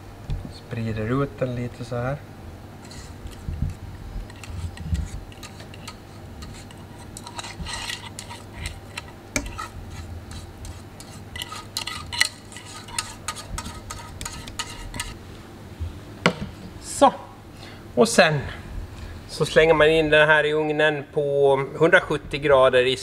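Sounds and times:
kitchenware clinking and scraping: 0:04.3 - 0:15.2.

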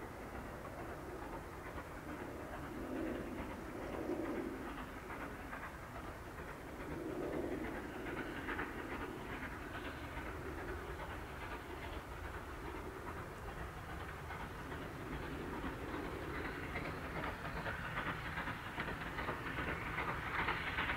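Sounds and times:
distant steam locomotive chuffing: 0:00.0 - 0:20.9.

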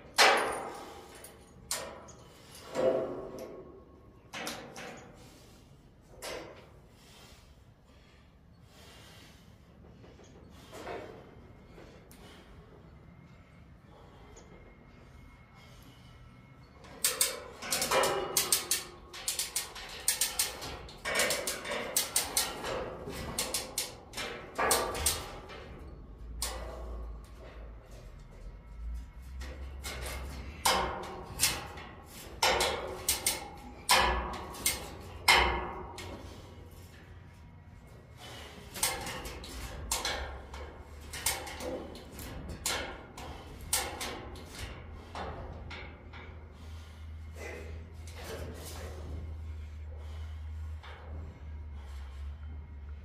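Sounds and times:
metallic clicks and clanks: 0:00.0 - 0:05.3, 0:16.6 - 0:46.8
steady low hum: 0:00.0 - 0:53.0.

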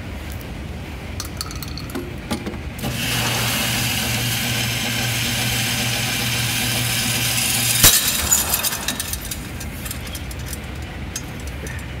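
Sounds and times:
target carrier motor humming: 0:02.8 - 0:12.0.

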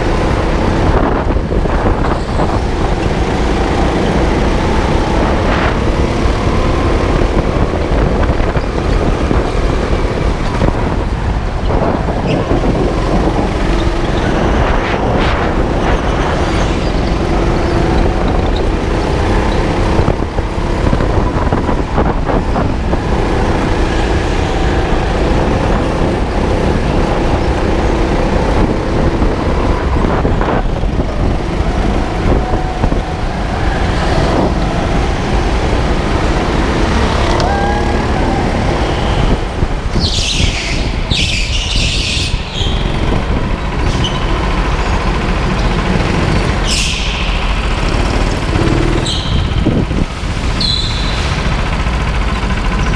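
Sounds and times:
rushing air: 0:00.0 - 0:18.3
go-kart motor rumble: 0:00.0 - 0:52.9.

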